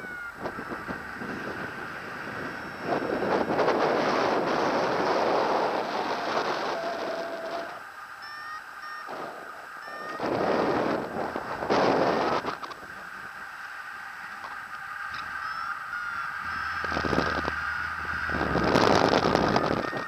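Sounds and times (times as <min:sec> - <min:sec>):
electronic variometer beeps: 0:00.0 - 0:03.8, 0:06.8 - 0:12.8, 0:15.1 - 0:20.0
wind rushing over microphone: 0:00.0 - 0:20.0.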